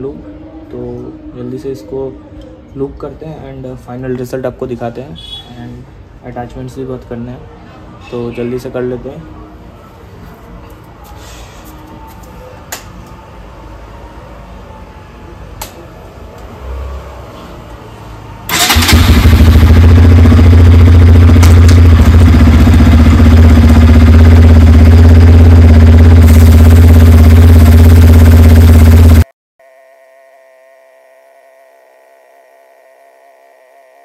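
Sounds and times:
motorcycle engine running: 18.5s - 29.3s.

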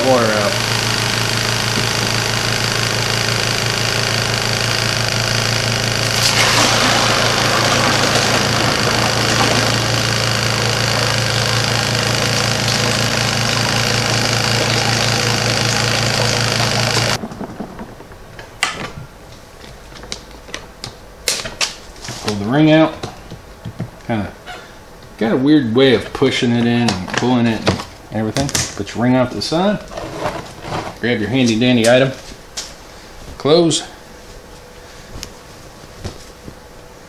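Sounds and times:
washing machine spin motor humming: 0.0s - 17.2s.

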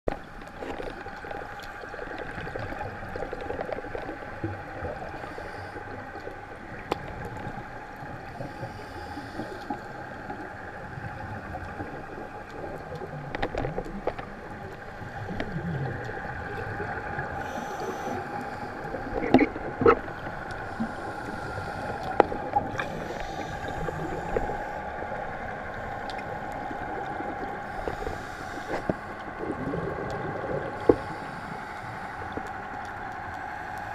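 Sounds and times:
muffled underwater hum: 0.1s - 33.9s
diver bubbles gurgling: 0.2s - 33.9s.

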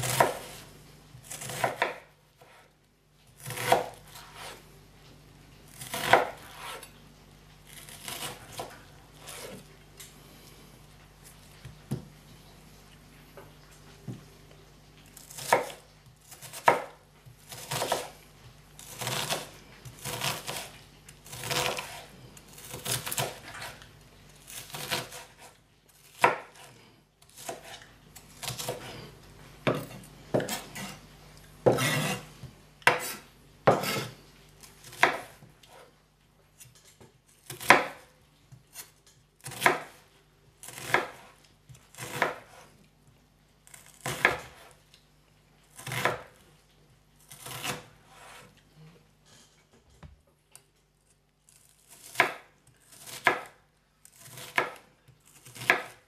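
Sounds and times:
knife slicing onion on board: 0.0s - 2.7s, 3.4s - 4.6s, 5.7s - 6.9s, 7.7s - 9.7s, 15.2s - 18.2s, 18.8s - 23.8s, 24.4s - 29.0s, 29.6s - 31.0s, 31.6s - 35.9s, 36.6s - 40.0s, 40.6s - 42.7s, 43.7s - 44.8s, 45.8s - 46.4s, 47.3s - 48.6s, 51.5s - 56.0s.

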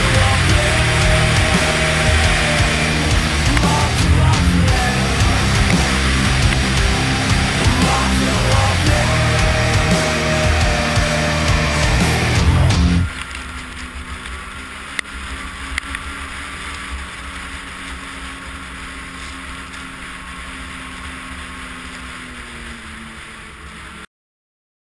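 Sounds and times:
steady hiss: 0.0s - 12.5s
snowmobile engine running: 0.0s - 24.0s.

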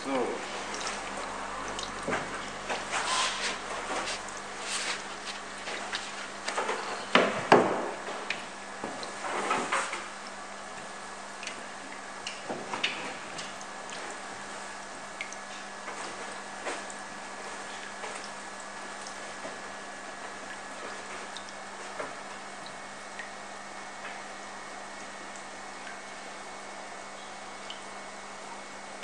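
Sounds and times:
aeration bubbling: 0.0s - 7.1s
fish splashing water: 0.4s - 7.1s.

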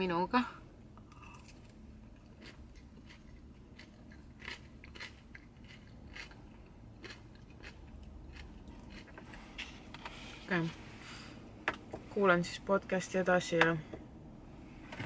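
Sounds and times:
chewing and crunching salad: 1.0s - 10.3s.

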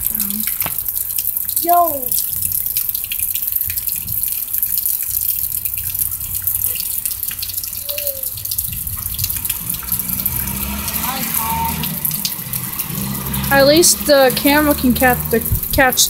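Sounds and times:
steady rain with drips: 0.0s - 16.0s
low rumble: 8.5s - 15.9s.

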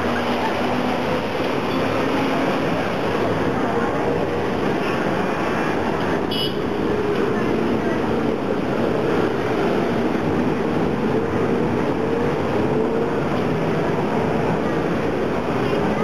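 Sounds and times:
car engines running: 0.0s - 16.0s.

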